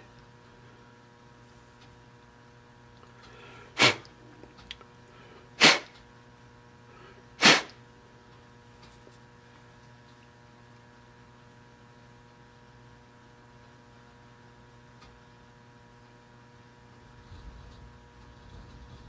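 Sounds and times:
person sneezing: 3.8s - 4.1s, 5.6s - 5.9s, 7.4s - 7.8s.

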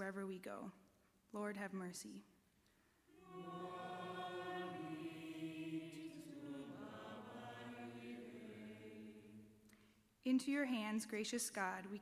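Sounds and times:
congregation singing: 3.1s - 9.7s.

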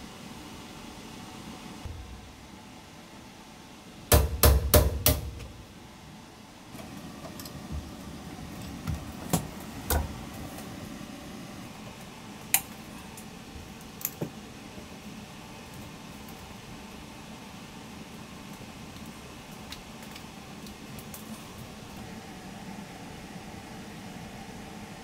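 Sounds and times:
sharp knocks and clicks of tools: 4.1s - 5.6s.

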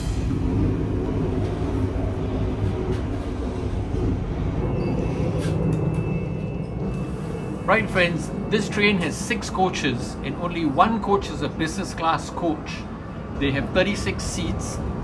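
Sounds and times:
electric train rumbling: 0.0s - 15.0s.

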